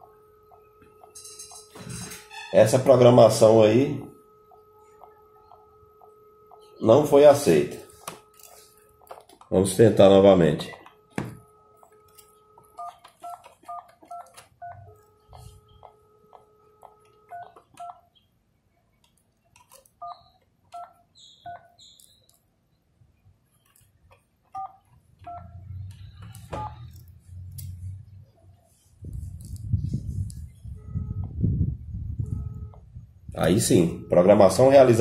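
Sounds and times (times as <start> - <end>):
keypad beeps: 0.4 - 2.9, 10.6 - 18.2, 19.6 - 22.4, 24.5 - 27.0, 30.6 - 31.4, 32.2 - 34.9.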